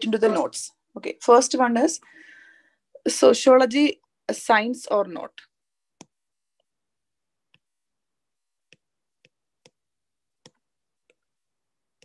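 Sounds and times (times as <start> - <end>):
stylus tapping on tablet screen: 5.9 - 6.8, 7.4 - 7.8, 8.6 - 12.0.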